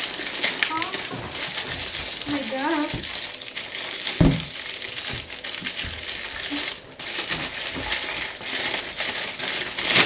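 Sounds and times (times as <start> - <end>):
plastic packaging crinkling: 0.0 - 10.0
thump: 4.2 - 4.5.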